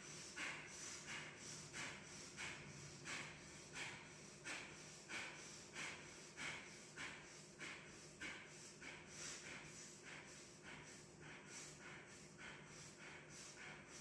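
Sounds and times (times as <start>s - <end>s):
forceful breathing through nose: 0.0s - 14.0s.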